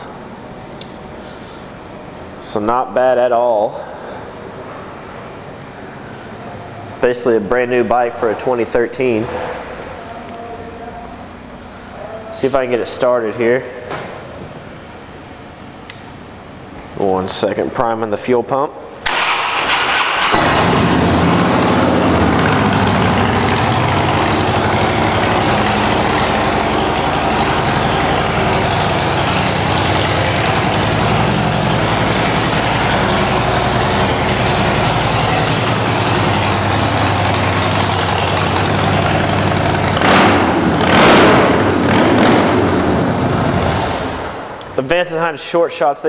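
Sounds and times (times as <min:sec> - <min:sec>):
motorcycle engine idling: 0:20.2 - 0:44.3.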